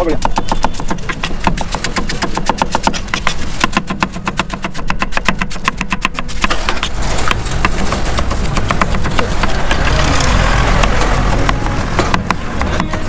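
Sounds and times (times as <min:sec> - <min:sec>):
knife chopping on wooden board: 0:00.0 - 0:10.0, 0:10.7 - 0:13.0
steady rushing noise: 0:06.3 - 0:13.0.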